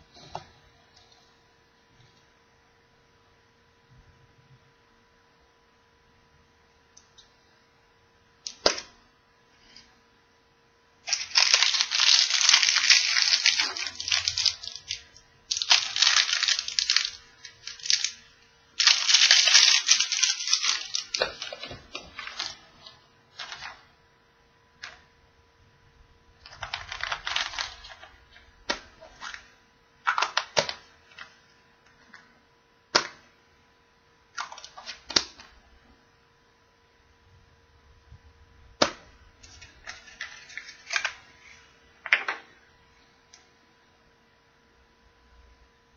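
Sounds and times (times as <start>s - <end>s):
wrapping crinkling and tearing: 11.0s - 23.9s, 26.4s - 31.4s, 34.3s - 35.5s, 39.4s - 41.7s.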